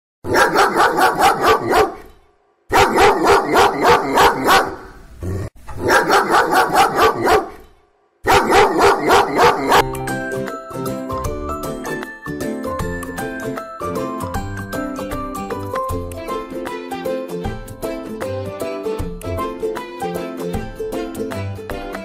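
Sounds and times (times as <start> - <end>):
dog barking rapidly: 0.2 - 2.1, 2.7 - 5.0, 5.7 - 7.6, 8.2 - 9.9
light chiming music: 9.8 - 16.5.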